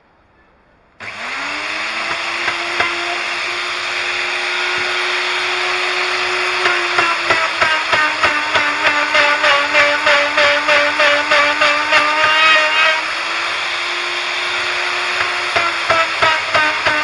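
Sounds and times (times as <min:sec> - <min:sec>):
electric drill motor whining: 0:01.0 - 0:17.0
knocks and clicks: 0:01.9 - 0:03.1, 0:06.4 - 0:12.5.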